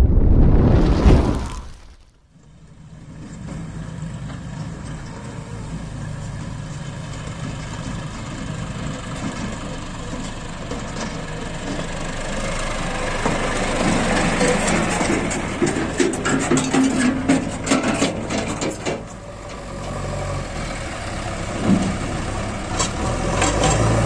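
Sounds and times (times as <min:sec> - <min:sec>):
tractor diesel engine running: 0:02.4 - 0:24.0.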